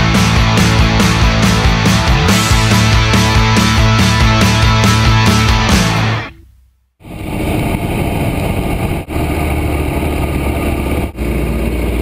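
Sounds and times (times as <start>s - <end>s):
motorcycle engine at low revs: 6.3s - 12.0s
constant rushing noise: 7.0s - 12.0s.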